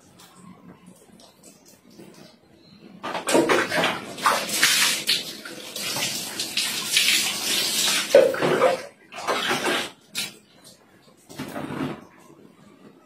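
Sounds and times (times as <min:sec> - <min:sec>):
dipper scooping water: 0:03.1 - 0:10.4
water poured splashing on tiles: 0:03.3 - 0:08.6.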